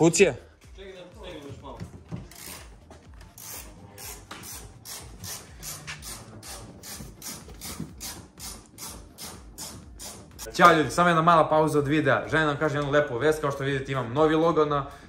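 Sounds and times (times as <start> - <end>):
mechanical ratcheting strokes: 2.3 - 10.5.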